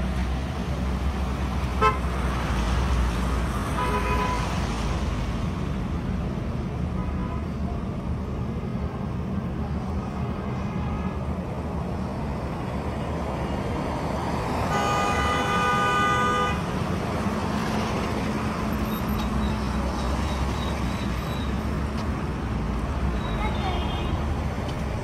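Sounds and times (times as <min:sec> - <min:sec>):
traffic on a wet road: 0:00.0 - 0:25.0
vehicle horn blast: 0:01.8 - 0:02.0, 0:14.7 - 0:16.6.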